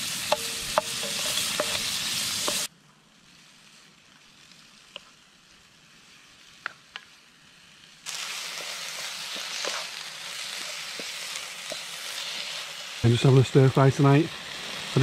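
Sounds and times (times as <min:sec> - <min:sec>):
vegetables sizzling in frying pan: 0:00.0 - 0:02.7, 0:03.3 - 0:15.0
faint hiss: 0:00.0 - 0:15.0
wooden spoon stirring: 0:00.3 - 0:02.7, 0:08.5 - 0:11.9.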